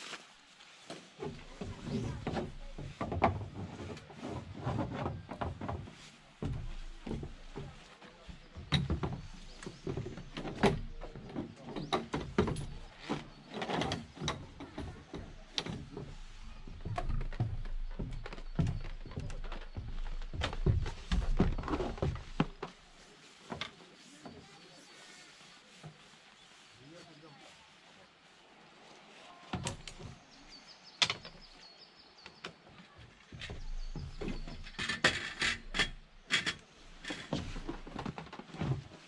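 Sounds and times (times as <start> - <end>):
knocks and clacks of camping gear: 0.8 - 24.9, 29.3 - 39.0
footfalls on wooden deck: 0.9 - 24.5, 32.4 - 35.2, 37.0 - 39.0.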